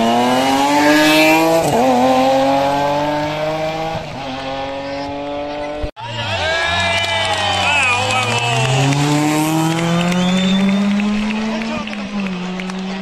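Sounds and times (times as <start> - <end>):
car engine revving hard: 0.0 - 5.9, 8.0 - 13.0.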